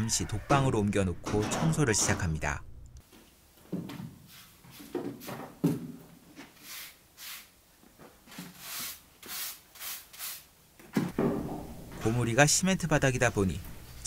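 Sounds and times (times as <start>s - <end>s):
broom sweeping cement floor: 4.1s - 5.6s, 6.3s - 7.6s, 8.4s - 10.4s.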